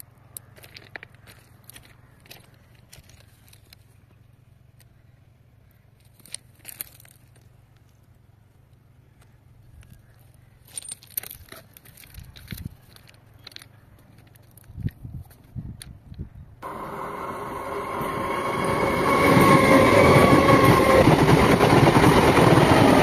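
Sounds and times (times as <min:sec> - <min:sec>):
footsteps on gravel ballast: 0:00.4 - 0:04.1, 0:06.0 - 0:08.1, 0:09.2 - 0:16.0
steady low hum: 0:16.2 - 0:22.4.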